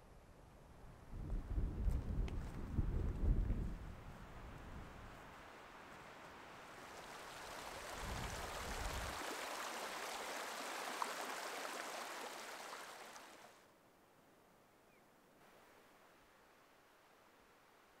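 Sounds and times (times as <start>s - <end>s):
wind rumble on microphone: 0.8s - 5.3s, 7.9s - 9.2s
stream splashing over rocks: 6.4s - 13.6s.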